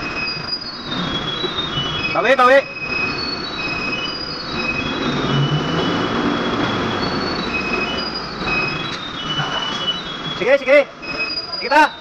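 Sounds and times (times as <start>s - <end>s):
high-pitched tyre squeals: 0.0s - 12.0s
truck road noise rumble: 0.0s - 12.0s.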